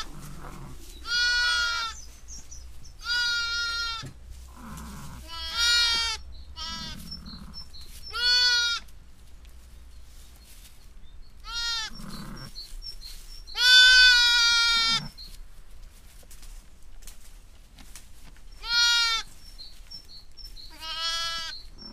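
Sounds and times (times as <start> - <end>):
lambs bleating: 0.0 - 2.0, 3.0 - 8.9, 11.4 - 12.6, 13.6 - 15.2, 18.6 - 19.3, 20.7 - 21.9.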